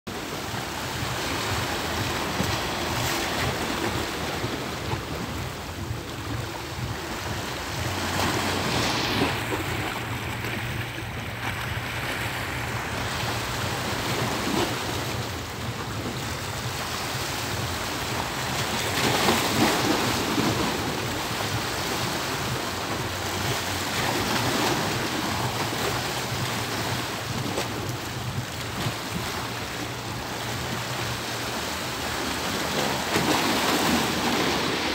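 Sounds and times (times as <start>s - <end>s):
sea waves washing: 0.1s - 34.9s
wind buffeting microphone: 0.1s - 34.9s.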